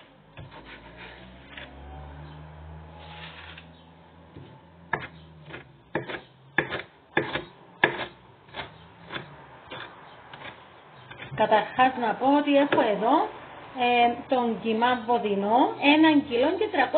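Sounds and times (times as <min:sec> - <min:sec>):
knife chopping on wooden board: 0:04.3 - 0:11.4.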